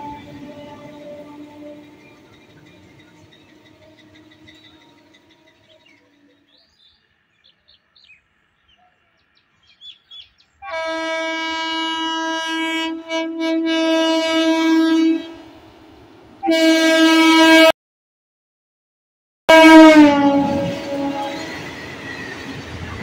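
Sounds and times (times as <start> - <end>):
locomotive horn blast: 0.0 - 6.4, 10.6 - 15.7, 16.4 - 17.7, 19.5 - 21.7.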